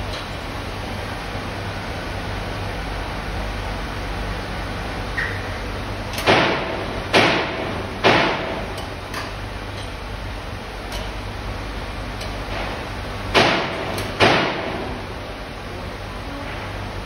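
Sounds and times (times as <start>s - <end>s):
steady low hum: 0.0s - 17.0s
sharp metallic knocks: 6.2s - 8.8s, 13.3s - 14.9s.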